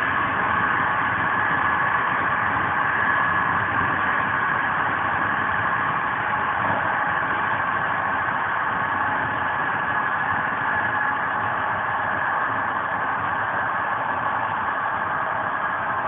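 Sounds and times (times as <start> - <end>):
train running at high speed: 0.0 - 16.0.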